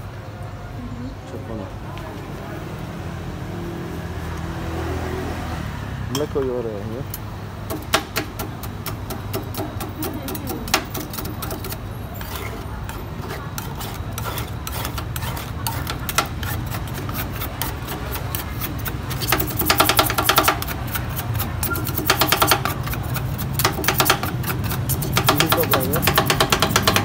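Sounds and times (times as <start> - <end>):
metal spatulas chopping on steel: 7.7 - 27.0
spatula scraping frozen steel plate: 8.8 - 27.0.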